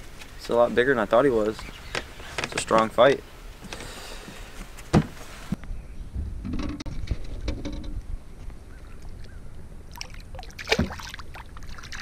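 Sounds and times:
fish splashing into water: 0:09.9 - 0:12.0.

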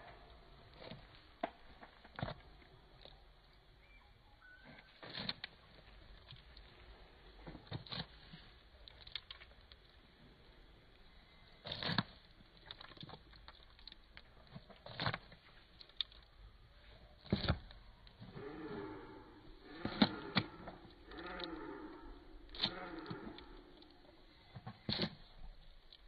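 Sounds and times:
beaks pecking feed in a trough: 0:10.8 - 0:16.4, 0:17.2 - 0:26.0.

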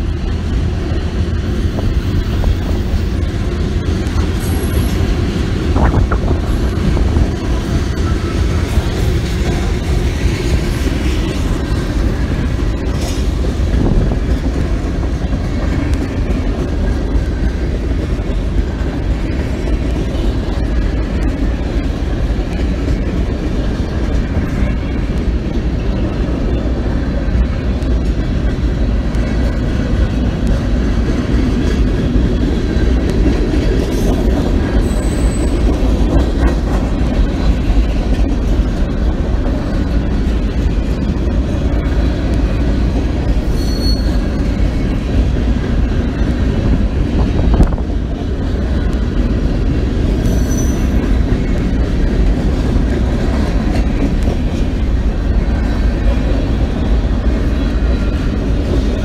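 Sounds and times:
freight train rumbling past: 0:00.0 - 0:59.0
train wheel squeals: 0:04.2 - 0:05.4, 0:33.9 - 0:38.2, 0:43.2 - 0:45.2, 0:50.1 - 0:51.4.

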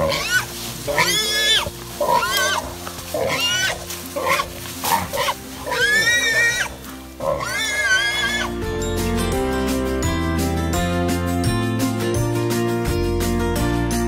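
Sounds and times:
wild boar squealing: 0:00.0 - 0:08.6.

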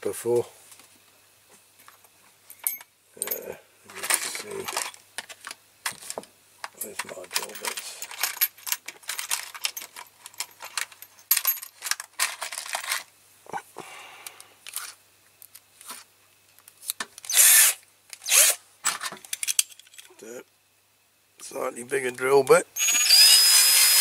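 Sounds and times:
drill bits clicking and rattling: 0:17.2 - 0:18.6, 0:22.8 - 0:24.0
drill chuck spinning bursts: 0:17.3 - 0:18.6, 0:22.8 - 0:24.0.

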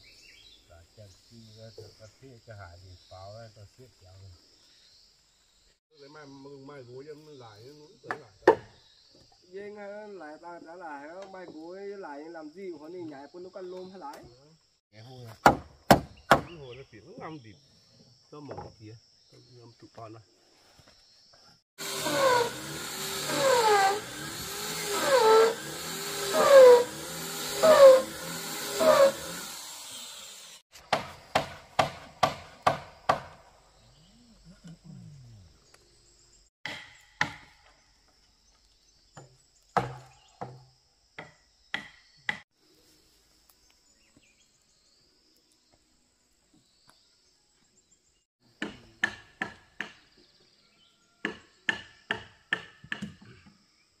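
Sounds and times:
tool striking wood: 0:08.1 - 0:08.7, 0:15.4 - 0:16.6, 0:21.8 - 0:33.5, 0:36.6 - 0:37.7, 0:39.2 - 0:42.4, 0:48.6 - 0:50.0, 0:51.2 - 0:53.2.

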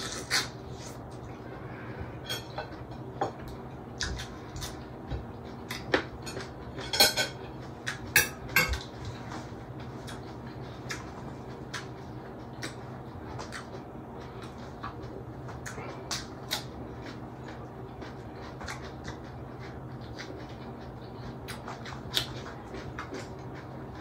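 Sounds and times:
metal spoon clinking on plates: 0:06.3 - 0:07.4.

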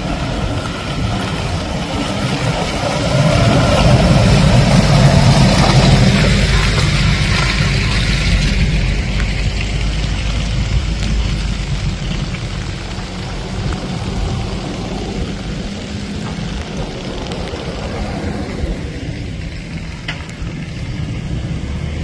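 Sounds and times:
off-road vehicle engine and tyres: 0:00.0 - 0:22.0.

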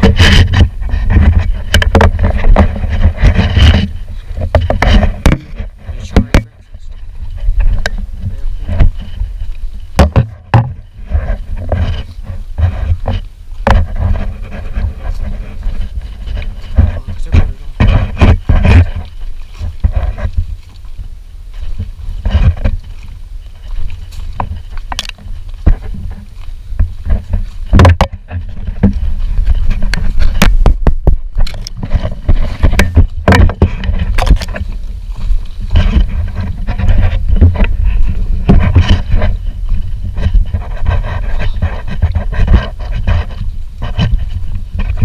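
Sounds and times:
paddle knocking against hull: 0:00.0 - 0:06.6, 0:09.9 - 0:12.0, 0:26.8 - 0:34.6
wind rumble on microphone: 0:00.0 - 0:45.0.

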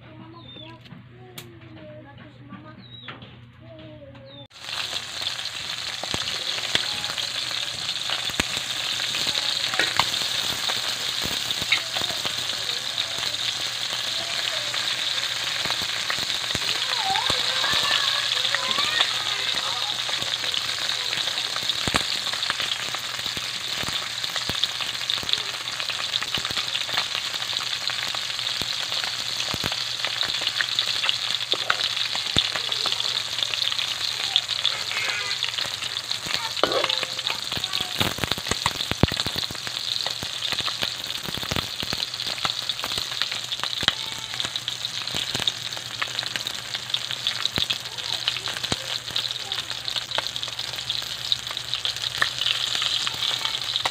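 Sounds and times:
fish frying in oil: 0:04.5 - 0:53.9.

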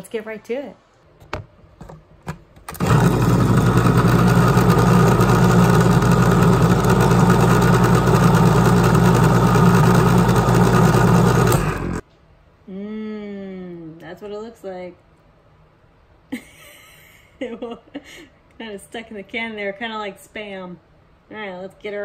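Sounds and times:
can opener motor humming: 0:02.7 - 0:12.0.

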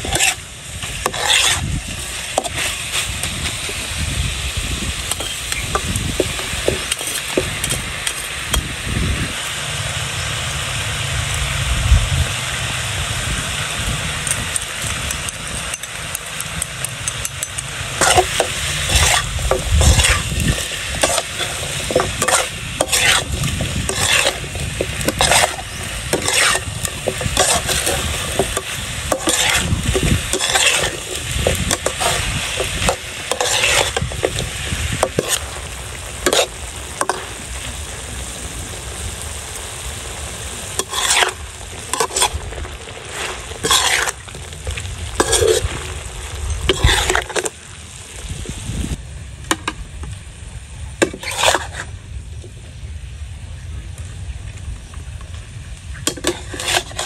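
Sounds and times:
metal spatula scraping a wok: 0:00.0 - 0:08.7, 0:16.6 - 0:37.4, 0:40.7 - 0:47.6, 0:51.0 - 0:51.9, 0:56.0 - 0:57.0
meat sizzling in a wok: 0:00.0 - 0:53.5, 0:54.2 - 0:57.0.

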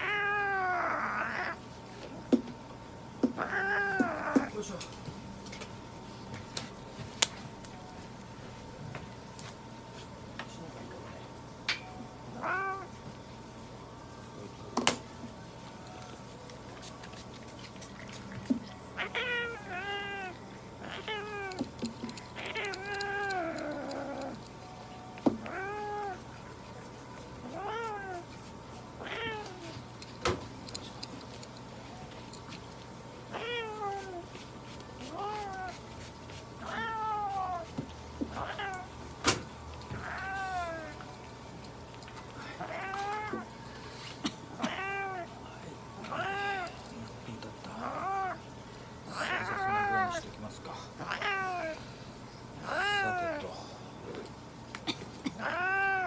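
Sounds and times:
cat meowing: 0:00.0 - 0:01.6, 0:03.4 - 0:04.5, 0:12.4 - 0:12.9, 0:19.0 - 0:21.7, 0:25.4 - 0:26.3, 0:27.4 - 0:28.3, 0:29.0 - 0:29.8, 0:33.3 - 0:34.2, 0:36.6 - 0:37.7, 0:39.9 - 0:41.0, 0:46.0 - 0:46.8, 0:49.1 - 0:50.2, 0:52.6 - 0:53.4, 0:55.4 - 0:56.0.

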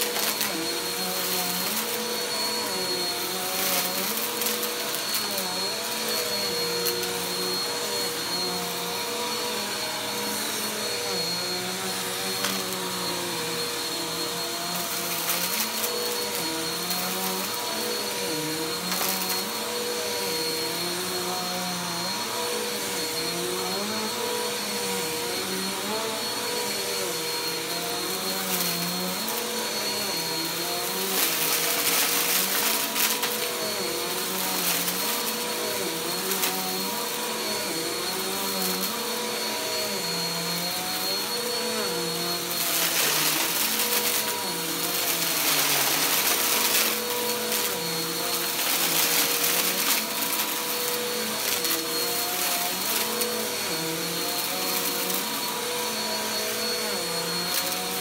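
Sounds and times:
vacuum cleaner motor whine: 0:00.0 - 0:58.0.

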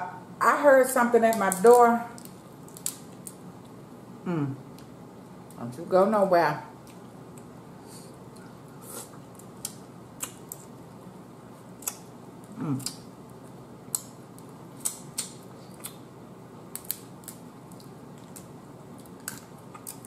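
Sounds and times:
eating crab clicks and smacks: 0:02.2 - 0:03.4, 0:13.9 - 0:16.0, 0:16.7 - 0:20.0
person humming: 0:04.2 - 0:04.6, 0:12.5 - 0:13.0.

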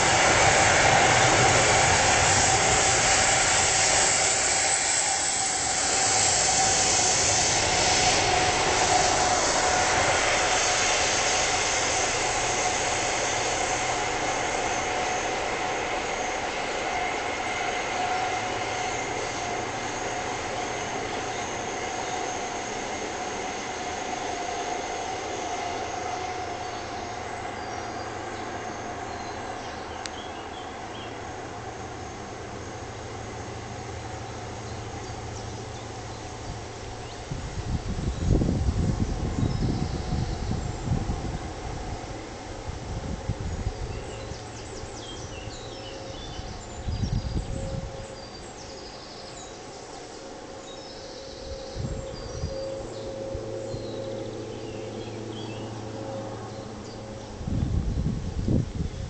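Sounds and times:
freight train wheels rushing on rail: 0:00.0 - 0:59.0.

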